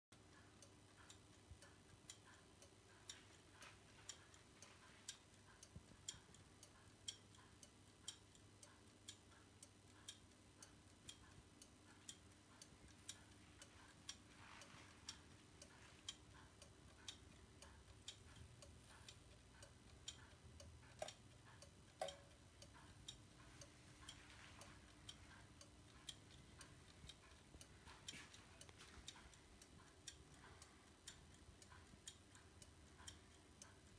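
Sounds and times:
clock ticking faintly: 0.1 - 33.9.

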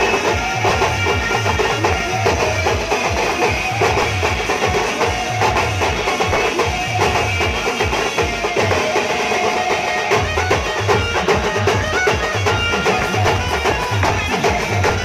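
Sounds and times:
snare drums beaten with sticks: 0.0 - 15.0
pitched melody line: 6.6 - 15.0
bass drum: 10.2 - 15.0.

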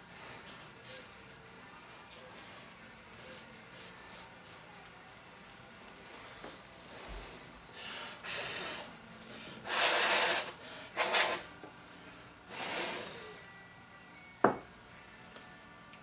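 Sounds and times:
gloved hands rubbing metal: 9.7 - 11.5.

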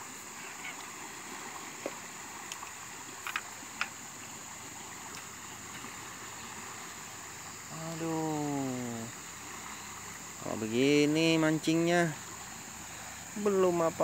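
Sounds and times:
fast-flowing river rushing: 0.0 - 14.0
faint clicks: 1.8 - 4.0.

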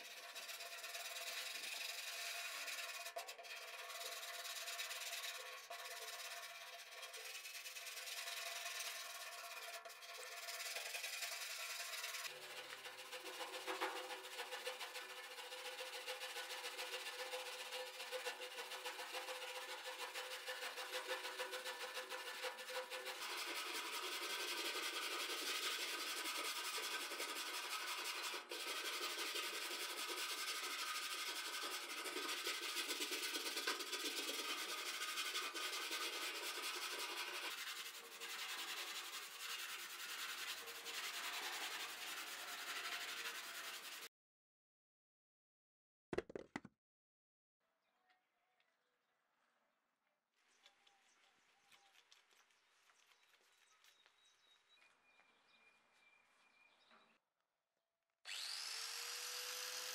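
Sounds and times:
wire brush scrubbing metal: 0.0 - 44.1.

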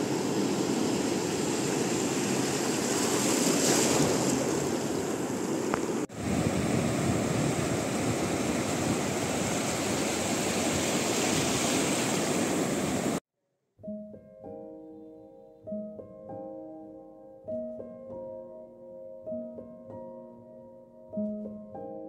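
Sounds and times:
waves breaking on sand: 0.0 - 13.2.

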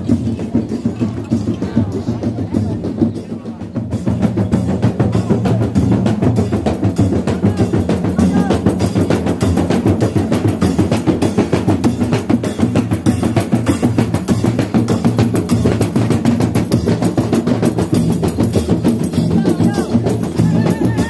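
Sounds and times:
frame drums beaten by hand: 0.0 - 21.0.

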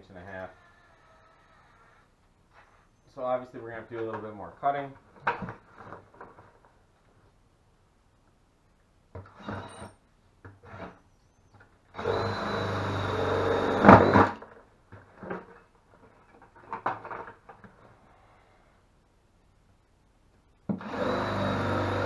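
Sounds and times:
cordless drill cutting plastic: 9.3 - 10.0, 12.0 - 14.4, 20.8 - 22.0.

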